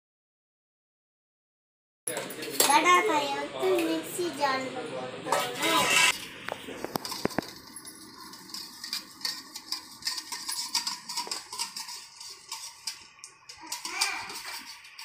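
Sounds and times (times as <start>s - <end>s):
whisk clinking in metal bowl: 7.0s - 15.0s.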